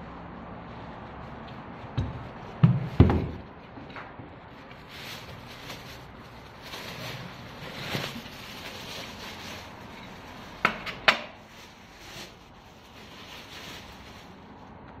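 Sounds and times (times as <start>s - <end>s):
plastic bag rustling: 4.4s - 10.6s, 11.3s - 14.8s.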